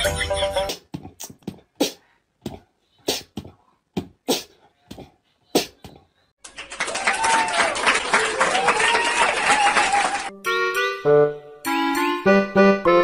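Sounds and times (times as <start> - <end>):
background music: 0.0 - 0.8, 10.3 - 13.0.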